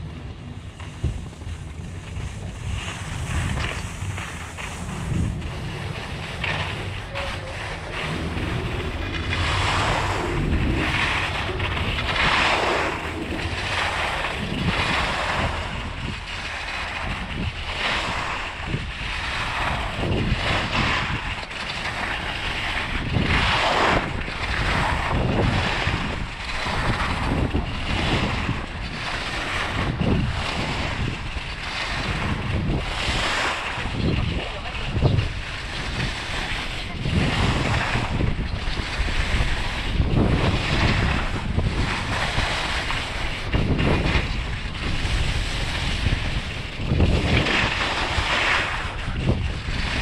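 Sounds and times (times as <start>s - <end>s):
skis scraping packed snow: 0.0s - 50.0s
wind buffeting microphone: 0.0s - 50.0s.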